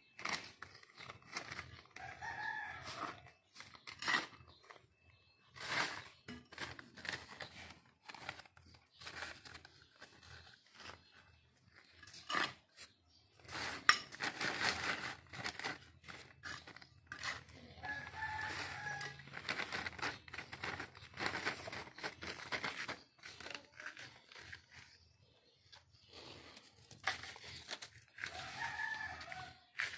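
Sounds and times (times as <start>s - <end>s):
plastic bag rustling and crinkling: 0.1s - 4.8s, 5.4s - 25.0s, 25.7s - 29.9s
trowel scraping soil: 0.1s - 25.1s, 26.1s - 29.9s
rooster crowing: 17.8s - 19.2s, 28.3s - 29.5s.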